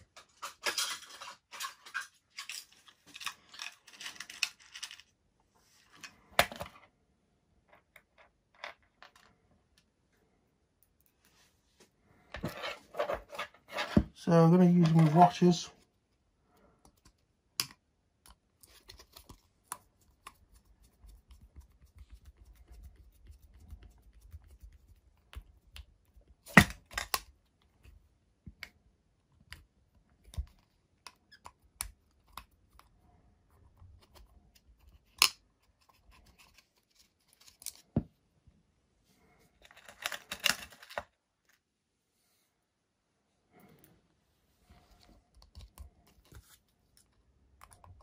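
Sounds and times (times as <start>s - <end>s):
scraping and rattling: 0.0s - 5.1s.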